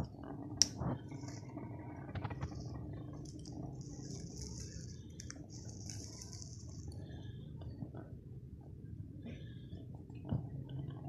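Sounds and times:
faint clicks and scratchy rustles: 0:00.0 - 0:08.1
low steady hum: 0:00.0 - 0:11.0.

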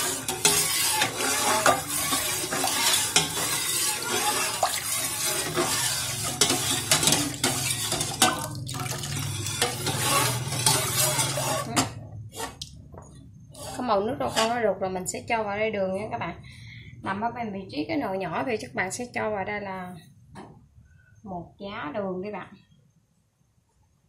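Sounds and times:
metal ladle scraping a pot: 0:00.0 - 0:12.7, 0:13.5 - 0:14.8.

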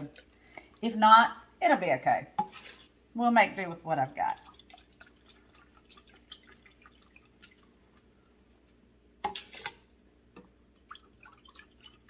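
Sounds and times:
liquid dripping: 0:00.0 - 0:01.0, 0:04.0 - 0:09.8, 0:10.4 - 0:12.0
liquid pouring and trickling: 0:04.1 - 0:08.1, 0:10.7 - 0:12.0.

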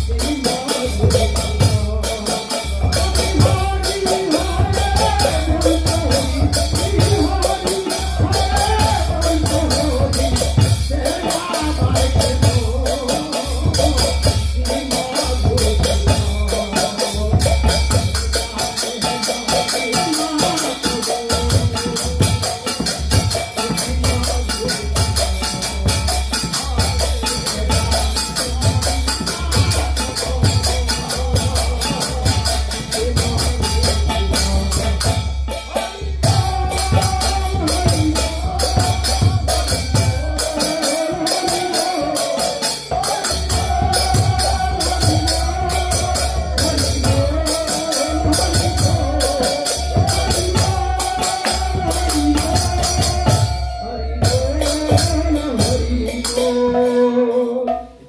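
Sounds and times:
jingling hand cymbals: 0:00.0 - 0:57.8
devotional singing: 0:00.0 - 0:58.0.

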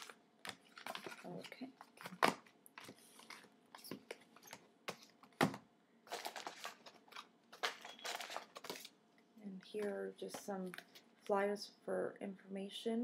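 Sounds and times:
paper rustling: 0:06.1 - 0:08.9.

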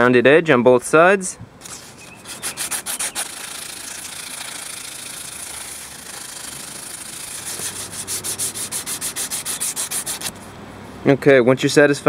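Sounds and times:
sandpaper rasping on wood: 0:01.6 - 0:10.4.

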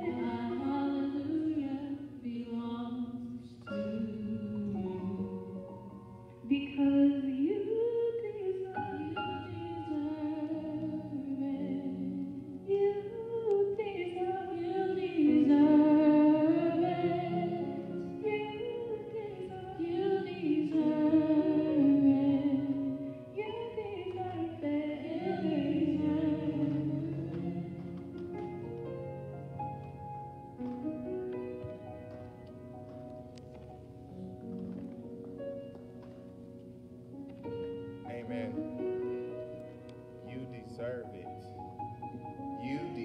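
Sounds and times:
worship song sung by vocal group: 0:13.7 - 0:28.6.

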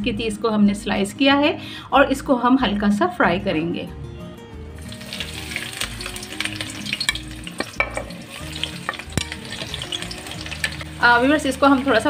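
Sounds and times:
onions sizzling in hot oil: 0:04.8 - 0:12.0.

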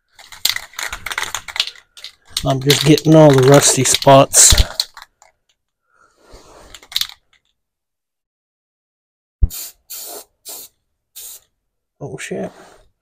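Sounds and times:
aerosol can spraying: 0:09.4 - 0:11.5.

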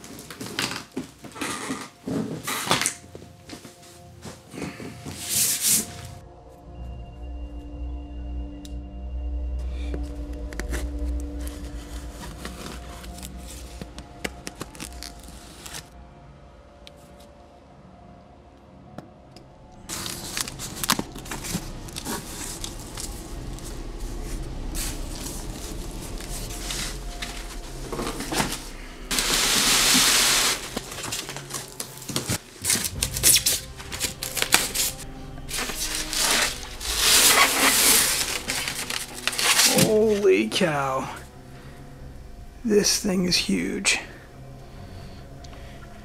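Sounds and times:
cardboard and styrofoam rustling: 0:00.0 - 0:06.2, 0:10.8 - 0:16.0, 0:19.9 - 0:40.2
hissing scrape: 0:28.2 - 0:31.2.

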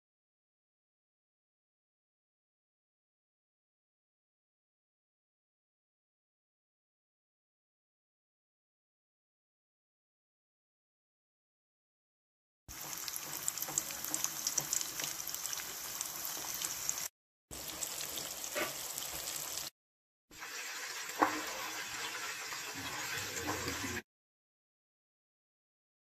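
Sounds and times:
tofu deep-frying in oil: 0:12.7 - 0:19.7, 0:20.3 - 0:24.0.

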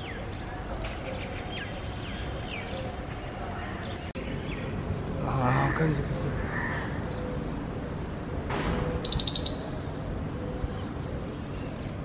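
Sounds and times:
outdoor background noise: 0:00.0 - 0:12.0
small bird chattering call: 0:09.0 - 0:09.8.

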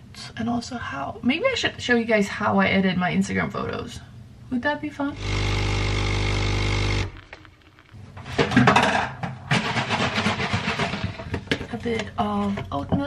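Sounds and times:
coffee machine pump buzzing: 0:05.2 - 0:07.2
knocks and clatter: 0:07.2 - 0:13.0.

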